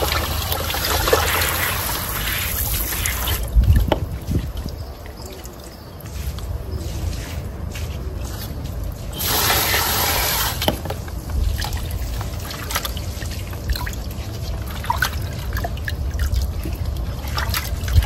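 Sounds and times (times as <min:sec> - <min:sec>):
rush of running water: 0:00.0 - 0:05.3, 0:09.1 - 0:10.8
water splashing and dripping: 0:00.0 - 0:06.5, 0:07.8 - 0:18.0.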